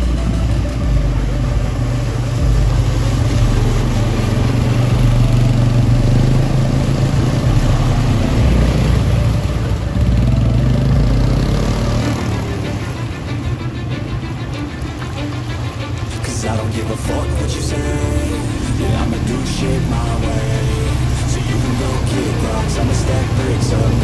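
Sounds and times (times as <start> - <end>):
quad bike engines running: 0.0 - 16.2, 17.0 - 24.0
water splashing from wheels: 0.0 - 24.0.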